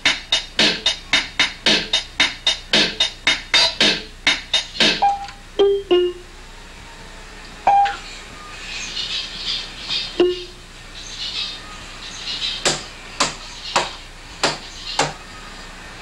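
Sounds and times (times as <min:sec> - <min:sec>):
electronic keyboard beat: 0:00.0 - 0:06.3, 0:10.2 - 0:10.6
single keyboard notes: 0:04.8 - 0:06.3, 0:10.2 - 0:10.6.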